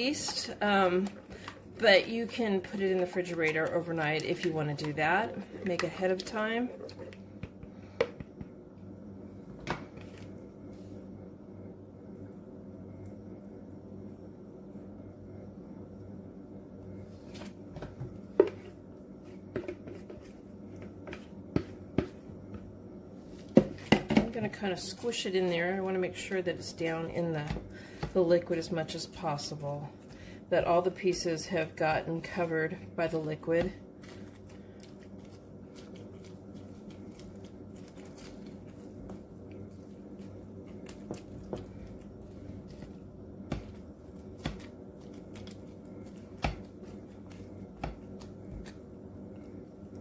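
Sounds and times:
steady low hum: 0.0s - 50.0s
wet squishing of soaked bread: 33.9s - 50.0s.

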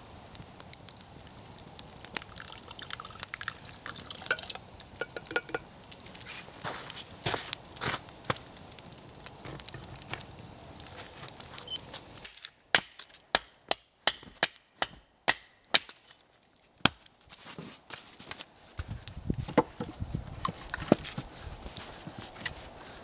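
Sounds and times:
campfire crackling: 0.0s - 23.0s
hatchet chopping wood: 12.2s - 16.0s.

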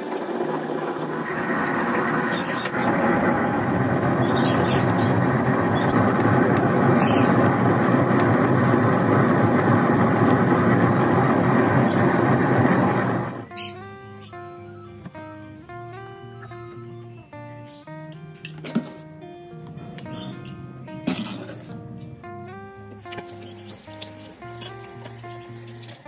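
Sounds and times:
wet grinder rumbling: 0.0s - 13.6s, 23.0s - 26.0s.

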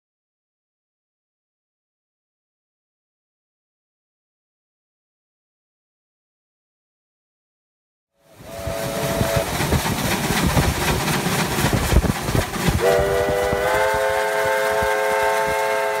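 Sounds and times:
long train whistle: 8.2s - 9.6s, 12.8s - 16.0s
steam locomotive exhaust beating: 8.3s - 16.0s.

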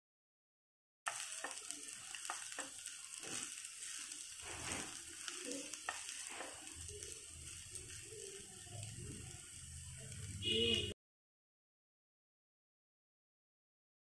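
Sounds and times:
spatula tapping and scraping pan: 1.1s - 6.7s
rice sizzling in a pan: 1.1s - 11.0s.

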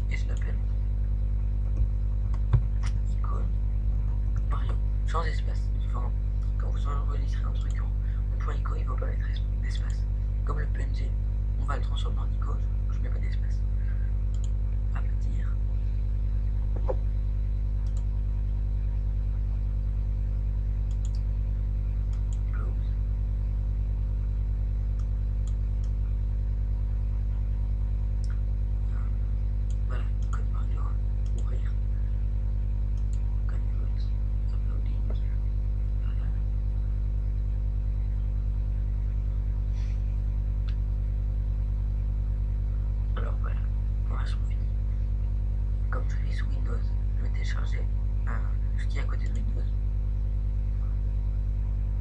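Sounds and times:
low electrical hum: 0.0s - 52.0s
faint click: 14.3s - 14.6s, 33.0s - 33.2s.

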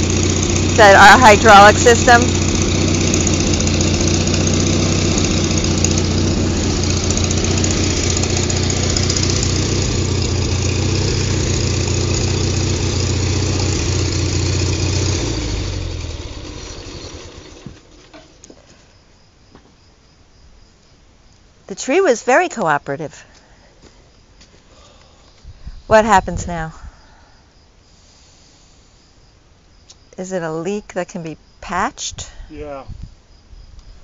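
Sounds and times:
machine engine idling: 0.0s - 18.5s.

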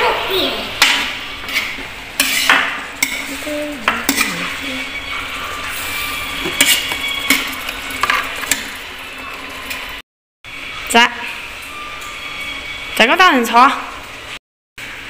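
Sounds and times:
food sizzling: 0.4s - 10.0s
metal spatula scraping a wok: 1.4s - 10.0s.

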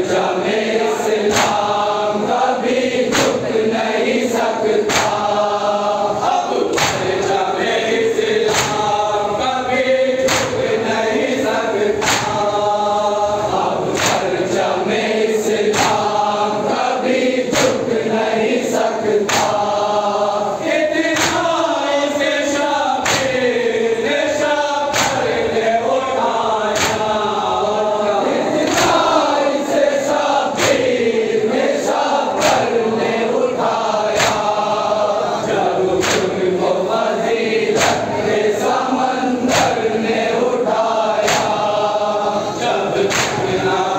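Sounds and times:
men chanting a lament in unison: 0.0s - 43.9s
hands beating on chests: 12.0s - 12.5s.

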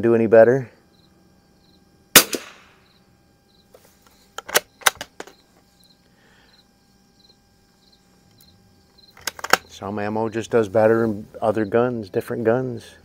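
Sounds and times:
rifle shot crack: 2.1s - 2.8s.

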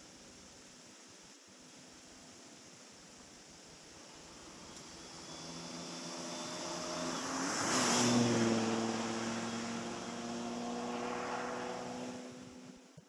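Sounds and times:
rush of noise: 3.7s - 12.9s.

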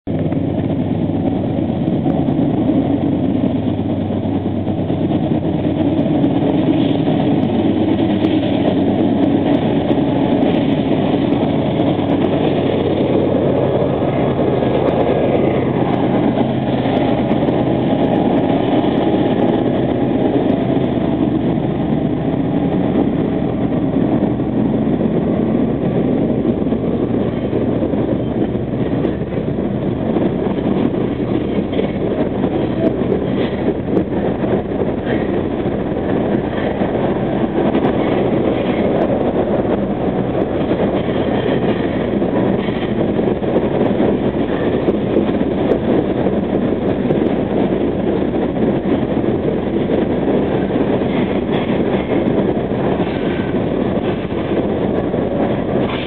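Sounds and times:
diesel locomotive engines working: 0.0s - 56.0s
freight train rumbling: 0.0s - 56.0s.

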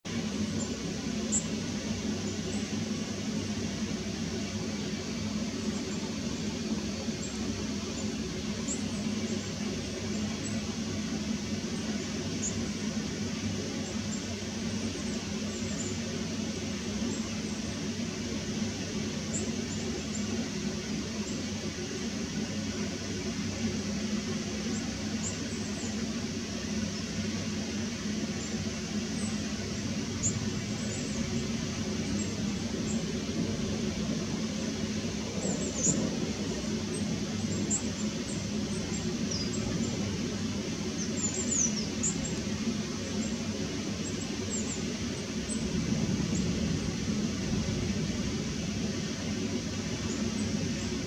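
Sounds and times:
rain hissing on foliage: 0.1s - 51.0s
thin high bird calls: 35.4s - 40.2s, 40.8s - 42.5s.

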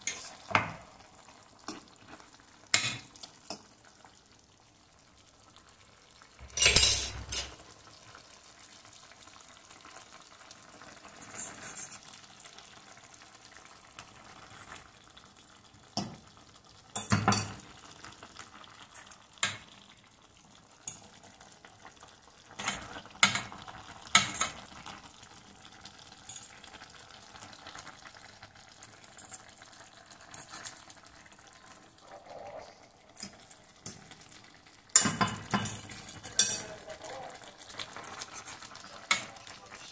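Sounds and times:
utensils clinking and scraping pan: 0.0s - 0.8s, 6.4s - 7.6s, 11.2s - 12.1s, 30.2s - 30.8s, 35.0s - 36.9s, 37.8s - 39.9s
stew simmering and sizzling: 0.0s - 39.9s.

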